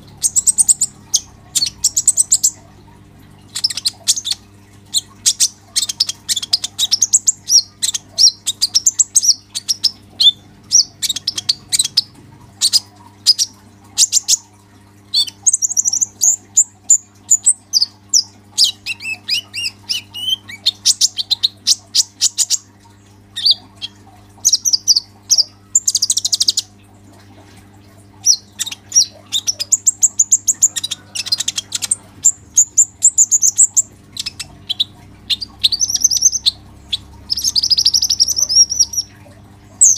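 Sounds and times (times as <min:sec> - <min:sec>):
faint low hum: 0:00.0 - 0:39.9
sunbird twittering: 0:28.2 - 0:39.2.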